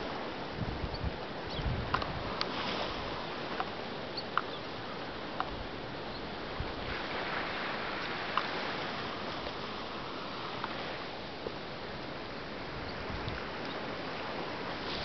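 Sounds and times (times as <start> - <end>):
wind gusting on microphone: 0.0 - 3.7, 4.9 - 15.0
small waves washing ashore: 0.0 - 15.0.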